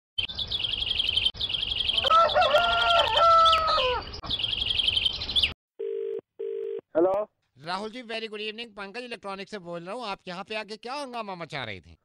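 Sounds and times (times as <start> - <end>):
fast bird-like chirping: 0.2 - 5.6
rooster crowing: 1.9 - 4.1
telephone ring tone: 5.8 - 6.8.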